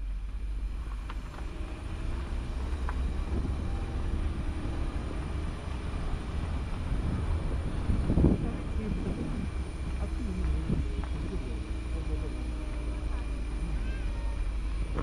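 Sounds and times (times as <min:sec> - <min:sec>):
engine and road noise rumble: 0:00.0 - 0:15.0.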